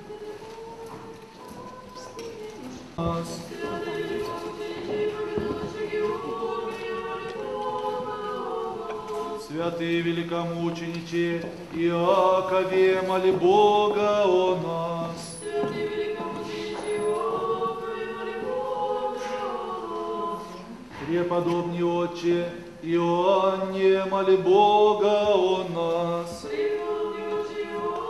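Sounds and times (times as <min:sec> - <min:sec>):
choir chanting unaccompanied: 0:03.0 - 0:10.6, 0:12.1 - 0:28.0.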